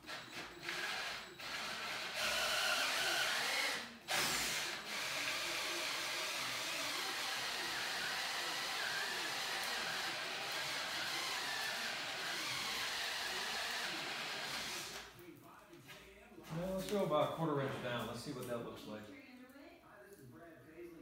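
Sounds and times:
power drill drilling into plastic: 0:00.0 - 0:15.1.

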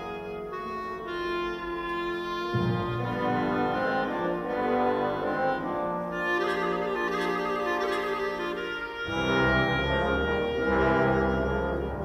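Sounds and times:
instrumental music with held notes: 0:00.0 - 0:12.0.

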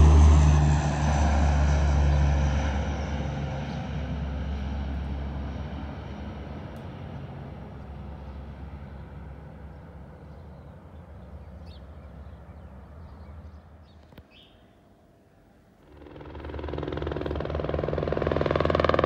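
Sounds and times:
turboprop airliner climbing: 0:00.0 - 0:10.2, 0:15.8 - 0:19.0.

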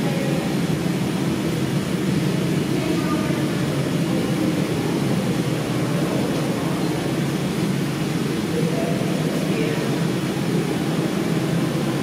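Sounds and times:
subway train rumbling: 0:00.0 - 0:12.0.

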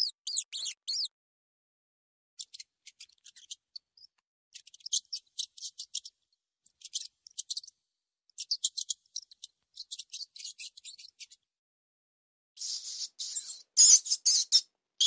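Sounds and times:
rat squeaking: 0:00.0 - 0:01.2, 0:02.4 - 0:06.2, 0:06.8 - 0:07.7, 0:08.4 - 0:11.4, 0:12.6 - 0:14.7.

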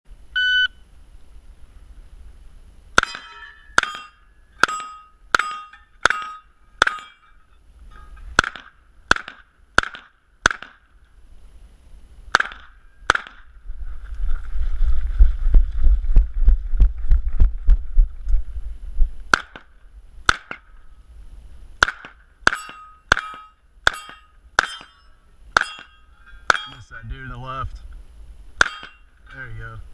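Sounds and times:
low rumbling noise: 0:00.1 - 0:29.9
shot timer beep: 0:00.4 - 0:00.8
steel target ringing: 0:03.0 - 0:10.0, 0:21.8 - 0:27.0, 0:28.6 - 0:29.6
gunshots: 0:08.4 - 0:10.8, 0:12.3 - 0:13.5.

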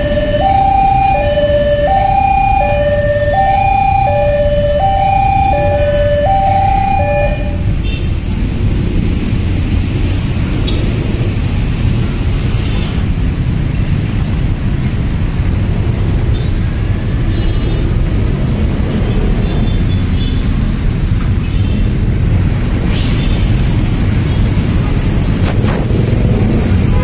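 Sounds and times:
road traffic rumble: 0:00.0 - 0:27.0.

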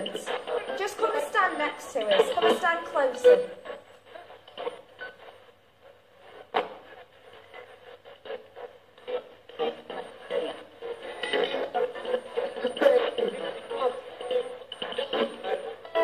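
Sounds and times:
tinny voice from small speaker: 0:00.0 - 0:03.7, 0:09.6 - 0:15.8.

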